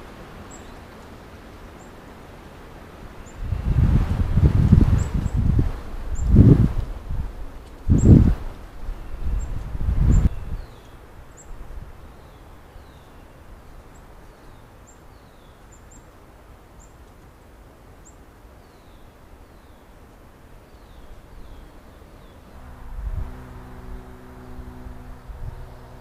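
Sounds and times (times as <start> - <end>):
background hiss: 0.0 - 26.0
small birds calling: 7.6 - 16.2
low rumble: 22.5 - 26.0.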